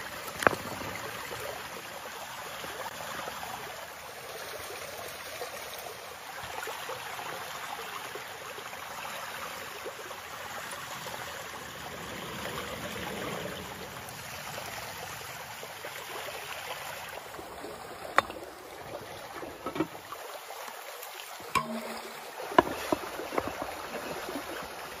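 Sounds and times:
stream flowing: 0.0s - 25.0s
sharp knocks: 21.6s - 23.0s.

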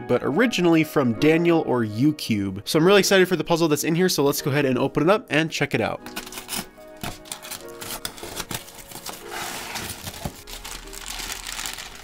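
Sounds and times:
packing tape peeling: 6.1s - 12.0s
plastic and bubble wrap crinkling: 6.1s - 12.0s.

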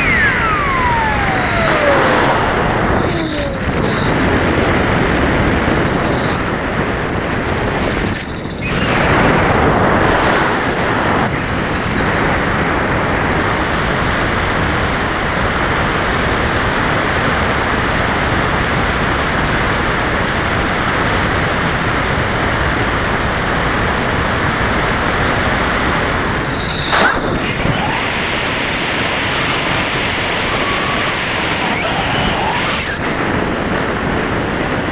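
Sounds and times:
airflow rushing over microphone: 0.0s - 13.7s
electric motor and propeller: 0.0s - 16.6s, 25.2s - 34.8s.

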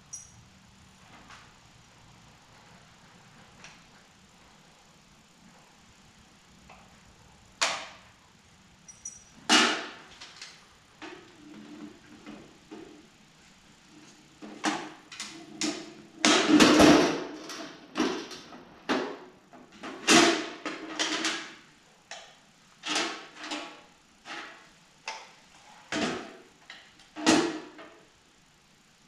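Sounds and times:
metal drill bits clinking: 8.9s - 9.4s.

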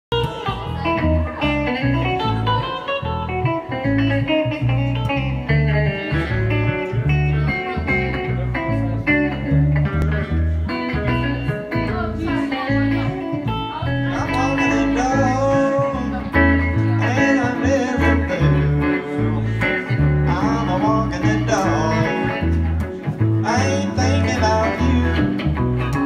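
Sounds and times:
electric guitar lead: 0.1s - 26.0s
upright double bass thumping: 0.1s - 26.0s.

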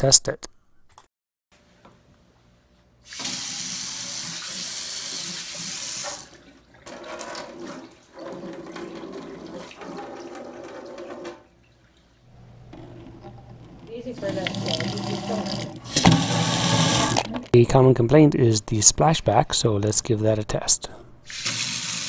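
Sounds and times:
faucet water running into steel sink: 3.1s - 11.5s, 12.8s - 17.4s, 21.3s - 22.0s.

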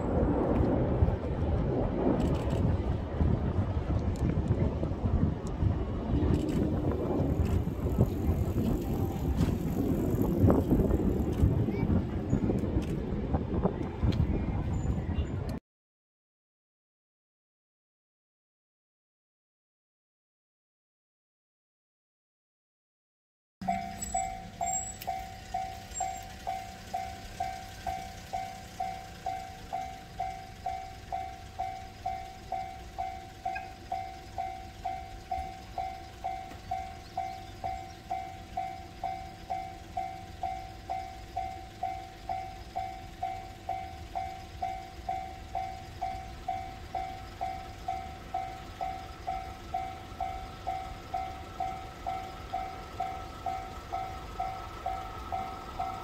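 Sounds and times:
level-crossing alarm bell ringing: 23.6s - 56.0s.

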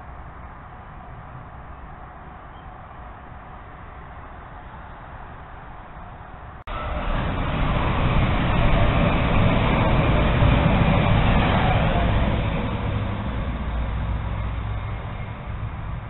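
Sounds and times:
vehicle passing by: 6.7s - 16.0s.

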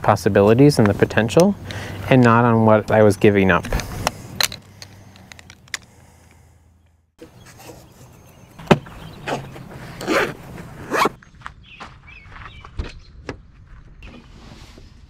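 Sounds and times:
zipper on fabric bag: 9.2s - 11.2s.

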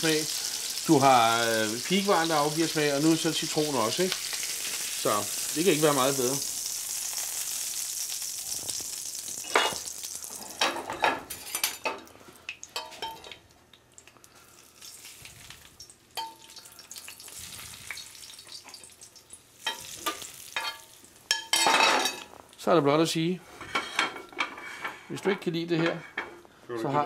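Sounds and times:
butter sizzling in frying pan: 0.0s - 10.7s, 11.3s - 22.6s
pan and utensils clinking: 12.8s - 13.4s, 19.6s - 22.3s.

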